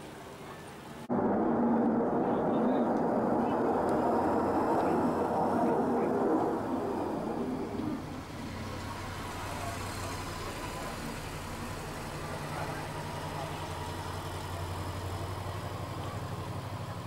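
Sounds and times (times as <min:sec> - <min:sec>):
distant jet engine rushing: 0:01.0 - 0:16.8.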